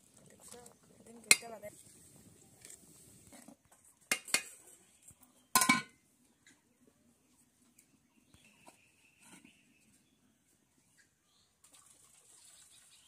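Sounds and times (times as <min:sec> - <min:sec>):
metal cookware clanking: 0:05.6 - 0:05.9
metal plate lid clanking on pot: 0:05.6 - 0:06.0.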